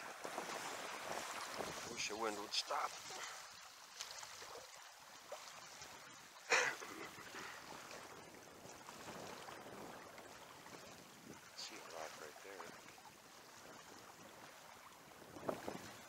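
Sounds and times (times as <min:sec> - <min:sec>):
wind blowing: 0:00.0 - 0:03.3, 0:13.6 - 0:16.0
river current washing: 0:00.0 - 0:16.0.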